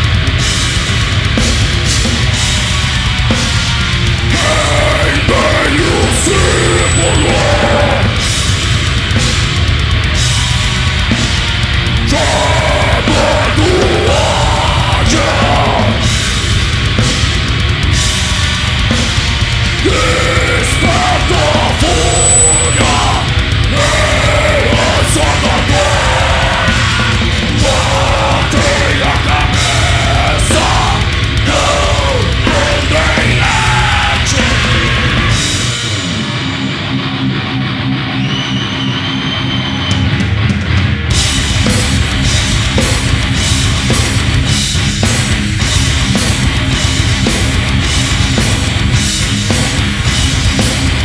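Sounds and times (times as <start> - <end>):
heavy metal band playing live: 0.0 - 51.0
harsh shouted vocals: 4.2 - 8.2, 12.0 - 16.2, 19.7 - 36.0.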